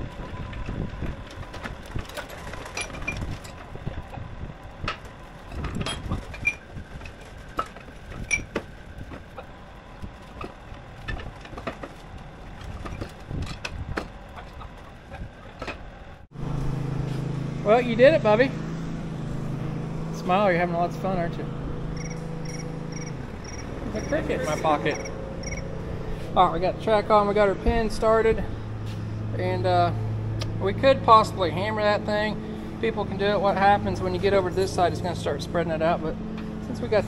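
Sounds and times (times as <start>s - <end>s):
steel track clanking: 0.0s - 16.3s, 20.1s - 37.0s
forklift engine running: 0.0s - 37.0s
backup beeper tone: 21.9s - 25.7s.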